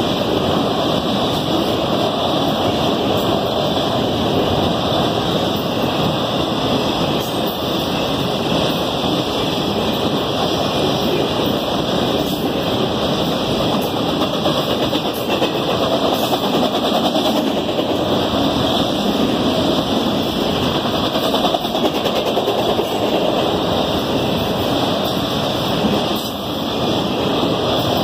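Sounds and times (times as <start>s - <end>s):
steel wheels on rails: 0.0s - 28.0s
fast clicking of wheels: 13.7s - 18.2s, 20.6s - 23.5s.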